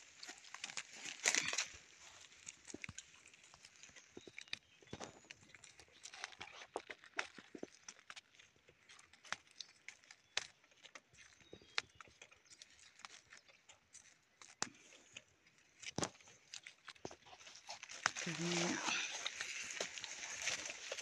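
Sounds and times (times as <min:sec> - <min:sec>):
dry leaf litter crackling: 0:00.0 - 0:04.4, 0:16.0 - 0:21.0.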